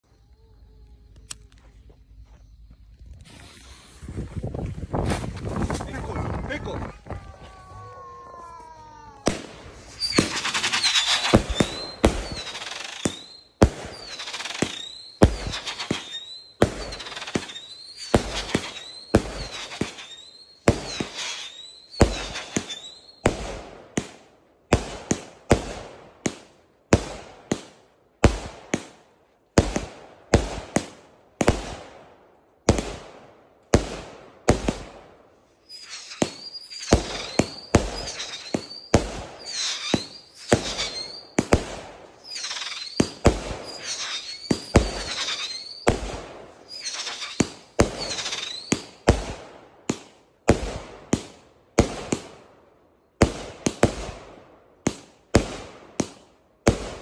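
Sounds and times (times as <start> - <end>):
wavering firework whistles: 0.0 - 23.4, 35.5 - 49.2
firework bangs: 4.9 - 32.0, 32.6 - 52.5, 53.2 - 57.0.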